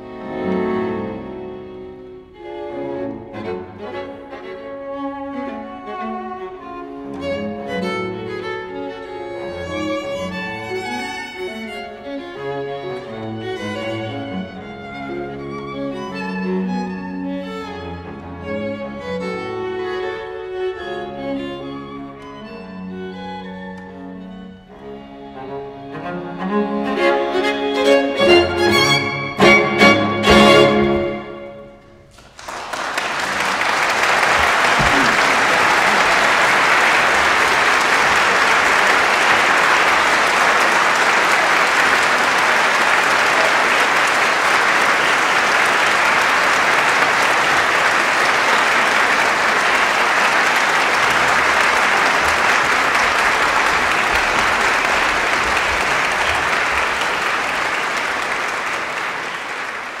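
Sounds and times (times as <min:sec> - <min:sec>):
string quartet chord: 0:00.0 - 0:32.0
audience applause: 0:29.4 - 1:00.0.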